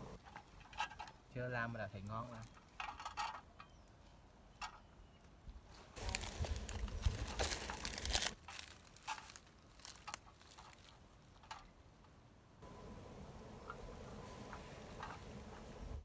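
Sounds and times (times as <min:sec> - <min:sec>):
knife cutting corn husk rustle: 0:05.9 - 0:11.0.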